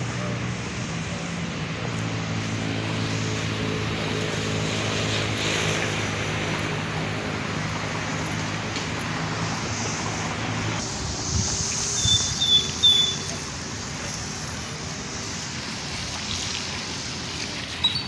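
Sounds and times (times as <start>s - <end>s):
engine humming: 0.0s - 18.0s
wind noise on microphone: 2.7s - 13.4s.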